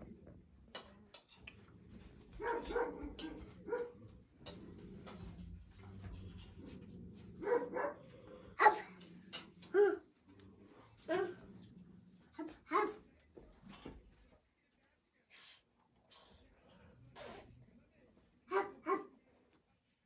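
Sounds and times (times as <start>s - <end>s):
dog barking: 2.4s - 4.0s, 7.4s - 9.0s, 12.7s - 13.0s, 18.5s - 19.2s.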